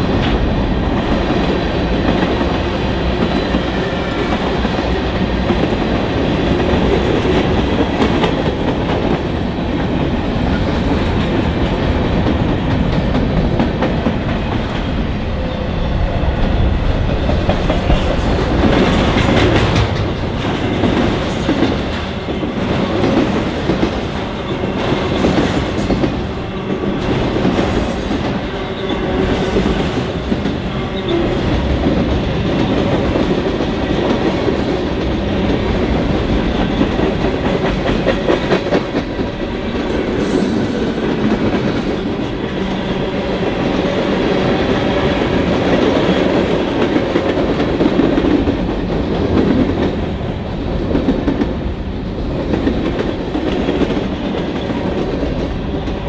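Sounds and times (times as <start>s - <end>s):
wheels clacking over rail joints: 17.0s - 24.0s.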